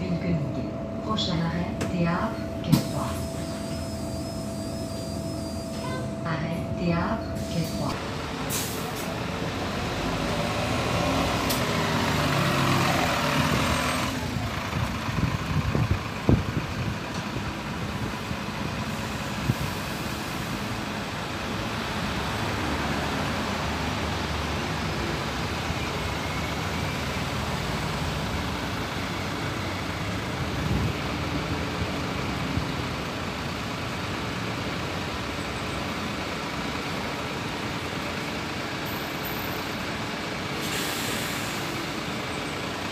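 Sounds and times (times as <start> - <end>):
buses and traffic driving past: 0.0 - 42.9.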